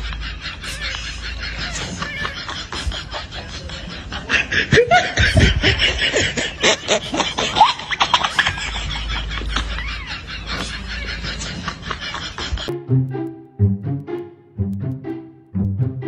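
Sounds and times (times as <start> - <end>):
person giggling: 0.0 - 12.8.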